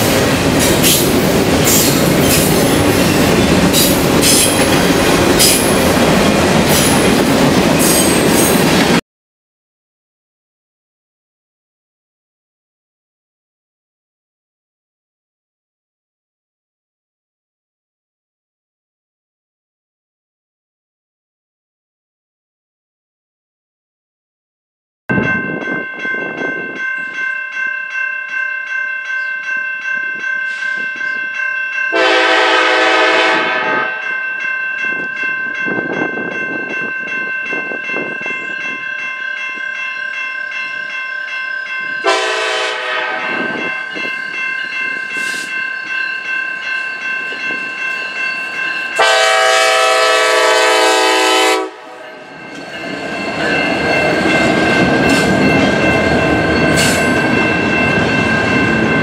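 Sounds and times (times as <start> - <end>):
diesel locomotive passing: 0.0 - 9.0, 31.8 - 59.0
locomotive bell ringing: 0.0 - 9.0, 25.1 - 59.0
locomotive air horn blasts: 31.9 - 34.0, 42.0 - 43.5, 49.0 - 52.3.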